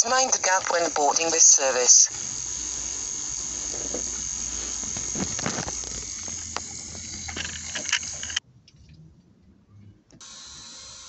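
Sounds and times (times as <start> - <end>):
insects chirring: 0.0 - 8.4.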